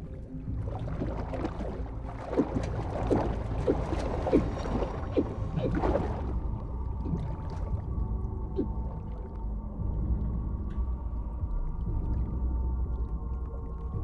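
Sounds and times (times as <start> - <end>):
air bubbles gurgling: 0.0 - 7.7
muffled low drone: 0.0 - 14.0.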